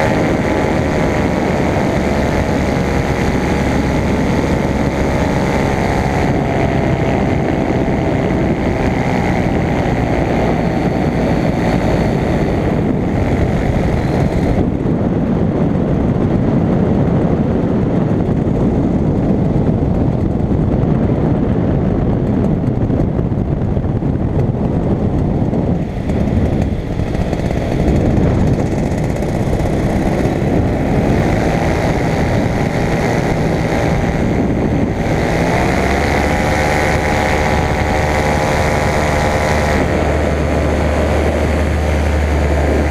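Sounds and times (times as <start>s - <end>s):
paramotor engine and propeller: 0.0s - 42.9s.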